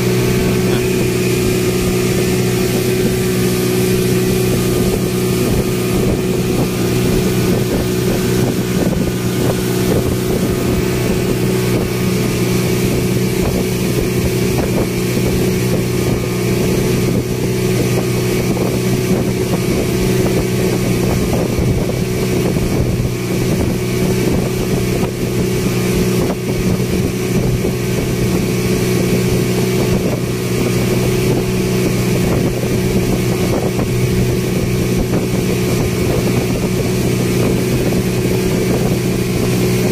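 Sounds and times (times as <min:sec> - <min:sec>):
wind rushing: 0:00.0 - 0:28.0
speedboat engine drone: 0:00.0 - 0:39.9
water rushing past: 0:00.0 - 0:39.9.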